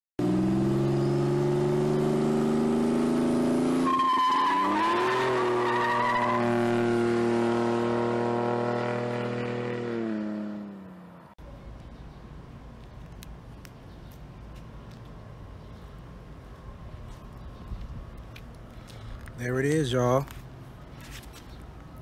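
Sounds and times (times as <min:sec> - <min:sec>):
car engine revving high: 0:00.2 - 0:11.0
tire squeal: 0:03.6 - 0:09.5.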